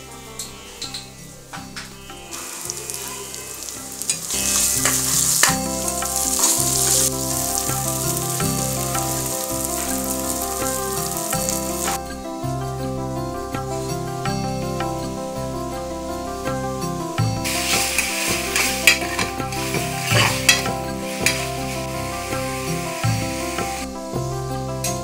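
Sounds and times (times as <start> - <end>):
background music: 0.0 - 25.0
food sizzling in oil: 2.3 - 12.0, 17.4 - 23.9.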